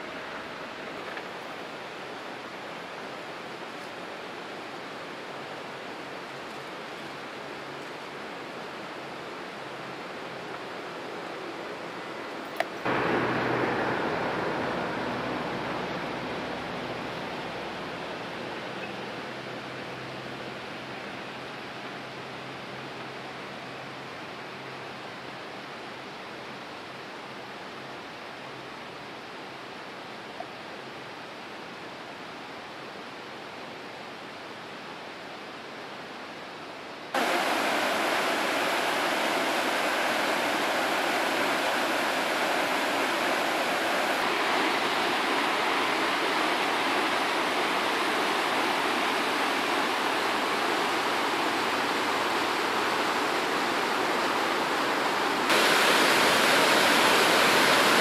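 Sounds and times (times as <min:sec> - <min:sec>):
stream tumbling over rocks: 0:00.0 - 0:21.0, 0:37.2 - 0:58.0
faint steady rush: 0:00.0 - 0:27.2, 0:37.1 - 0:58.0.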